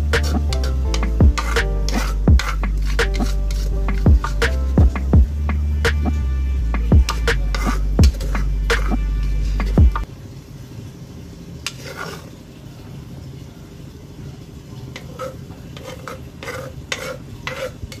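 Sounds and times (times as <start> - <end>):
background music: 0.0 - 10.1.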